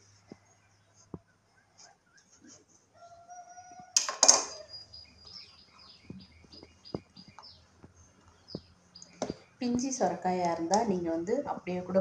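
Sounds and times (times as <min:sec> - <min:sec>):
birds chirping: 0:04.5 - 0:12.0.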